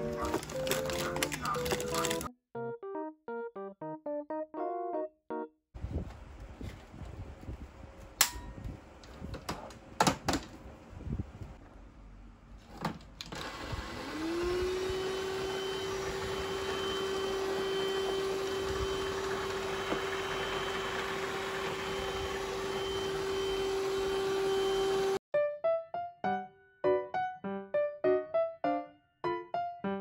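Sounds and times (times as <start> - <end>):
vacuum motor whining: 13.2 - 25.2.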